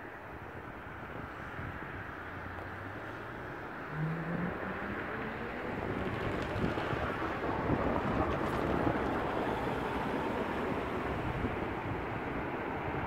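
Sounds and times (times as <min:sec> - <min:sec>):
road traffic rushing: 0:00.2 - 0:13.0
wind buffeting microphone: 0:04.5 - 0:13.0.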